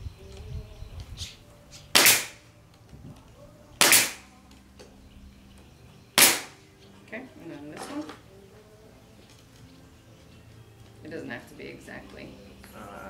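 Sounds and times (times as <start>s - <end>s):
pneumatic stapler shots: 1.9s - 2.4s, 3.8s - 4.3s, 6.2s - 6.6s.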